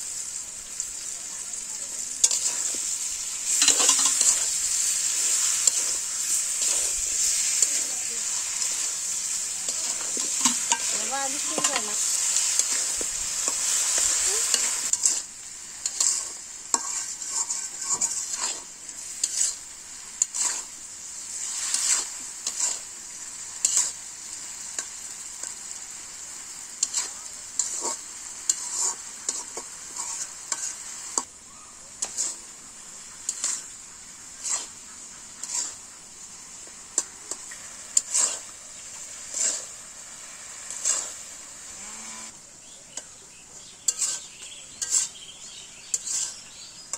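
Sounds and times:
fruit sizzling in oil: 0:00.0 - 0:46.9
metal spatula scraping pan: 0:02.2 - 0:19.6, 0:20.2 - 0:20.7, 0:21.4 - 0:22.9, 0:23.6 - 0:24.0, 0:26.8 - 0:30.8, 0:32.0 - 0:32.5, 0:33.1 - 0:35.9, 0:37.0 - 0:39.8, 0:40.7 - 0:41.8, 0:43.8 - 0:46.7.

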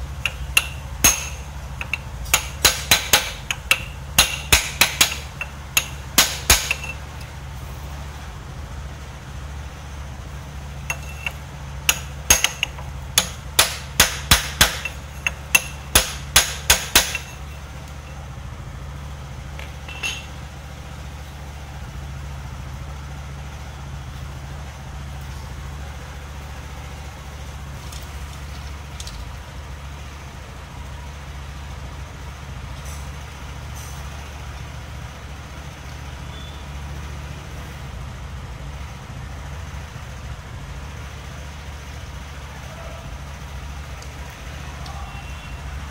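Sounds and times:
steady low hum: 0:00.0 - 0:31.3
hammer tapping on a pipe: 0:10.9 - 0:17.3.

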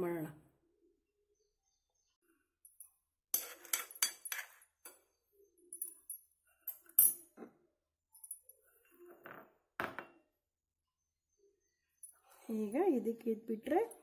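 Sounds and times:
crockery clinking on ceramic plate: 0:03.4 - 0:05.0.

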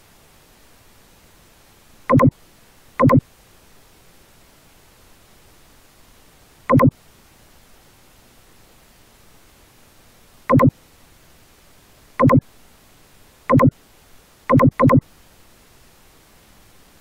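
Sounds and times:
faint steady hiss: 0:00.0 - 0:17.0
short electronic blips: 0:02.1 - 0:02.3, 0:03.0 - 0:03.2, 0:06.7 - 0:06.9, 0:10.5 - 0:10.7, 0:12.2 - 0:12.4, 0:13.5 - 0:13.7, 0:14.5 - 0:15.0.

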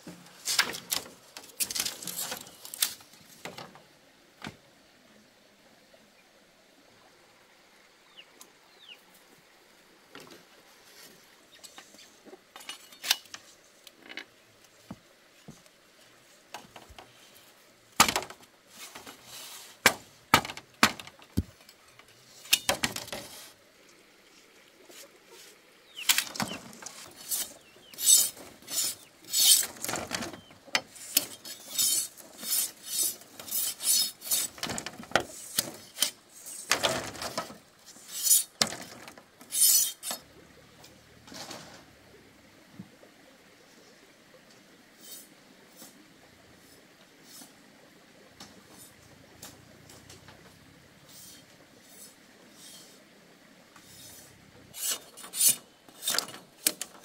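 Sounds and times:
machete scraping bamboo slats: 0:00.1 - 0:03.1, 0:12.6 - 0:13.4, 0:18.0 - 0:21.6, 0:26.0 - 0:40.2, 0:51.1 - 0:53.0, 0:53.8 - 0:57.0.

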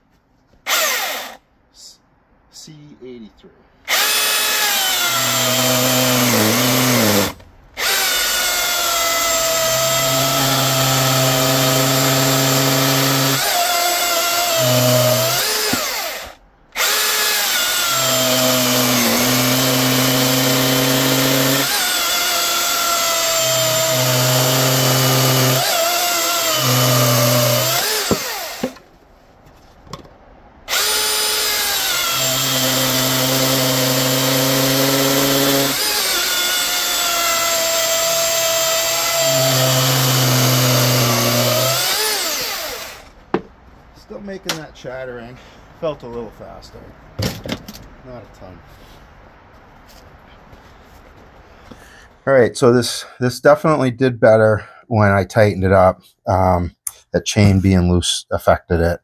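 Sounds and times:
electric chainsaw cutting wood: 0:00.7 - 0:01.4, 0:03.9 - 0:28.8, 0:30.7 - 0:43.2.

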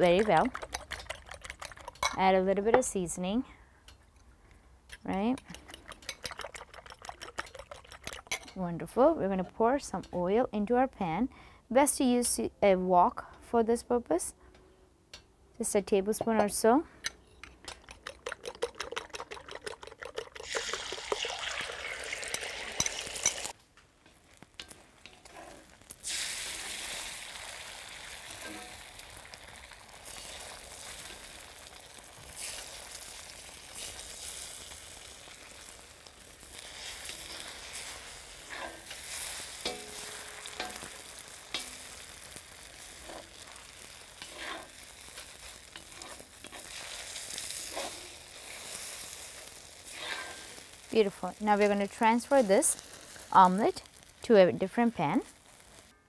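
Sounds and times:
eggs sizzling in hot oil: 0:00.0 - 0:03.2, 0:05.0 - 0:08.6, 0:17.5 - 0:56.0
wooden spatula scraping wok: 0:22.4 - 0:26.0, 0:36.4 - 0:56.0.

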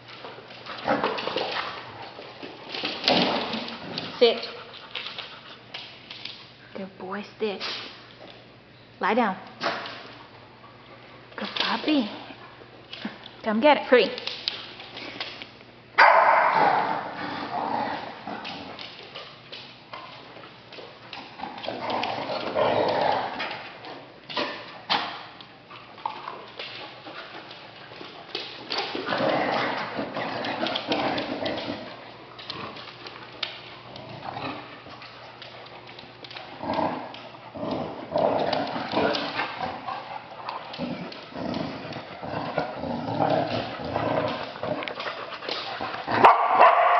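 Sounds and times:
dogs scrabbling and wrestling: 0:00.0 - 0:06.6, 0:09.6 - 0:13.4, 0:14.0 - 0:46.9
claws clicking on wooden floor: 0:18.4 - 0:46.2.

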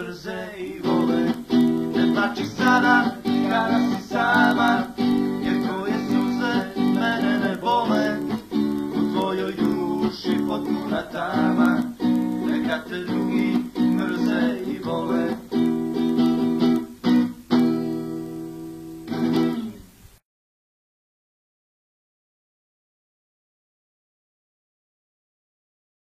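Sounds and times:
strummed guitar chords: 0:00.0 - 0:20.0.

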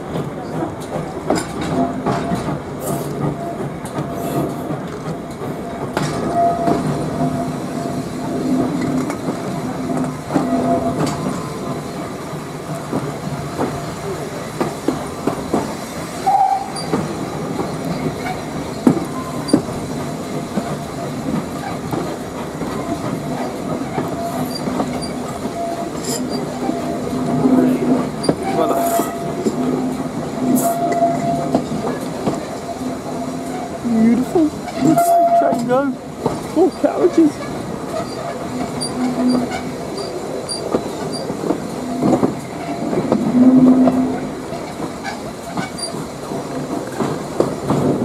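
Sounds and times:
train wheels clickety-clack: 0:00.0 - 0:48.0
wheel squeal: 0:16.2 - 0:17.0, 0:23.9 - 0:27.1, 0:37.4 - 0:41.3, 0:41.9 - 0:46.0.

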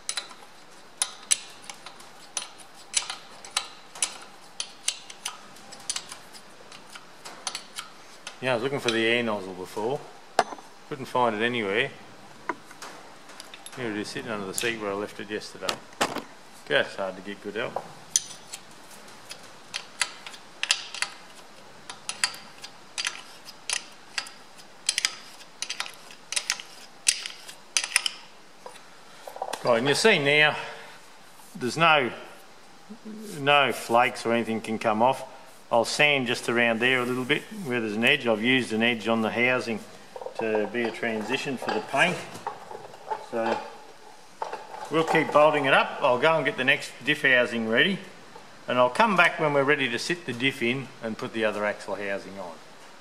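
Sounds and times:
spanner clicking on metal nuts: 0:00.0 - 0:09.0, 0:19.3 - 0:21.2, 0:21.9 - 0:28.2
spanner clinking on metal nuts: 0:01.0 - 0:07.9.

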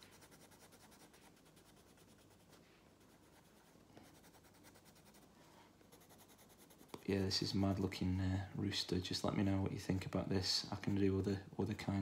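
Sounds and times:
pencil scratching on paper: 0:00.0 - 0:05.3, 0:05.9 - 0:07.2.

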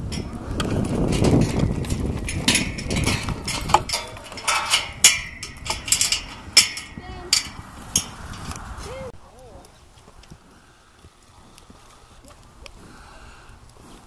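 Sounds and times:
clinks and knocks on metal gate: 0:00.1 - 0:08.6.

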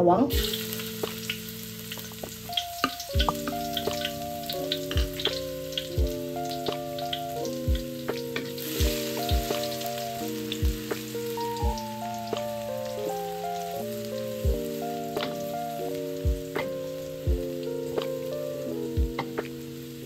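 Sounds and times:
lo-fi music with soft chords: 0:00.0 - 0:20.0
onions sizzling in oil: 0:00.3 - 0:20.0.

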